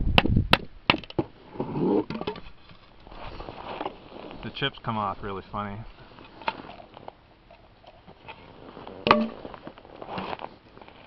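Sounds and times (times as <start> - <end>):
short scraping rustle: 1.4 - 7.1, 7.9 - 11.0
sharp wooden knock: 9.1 - 9.4.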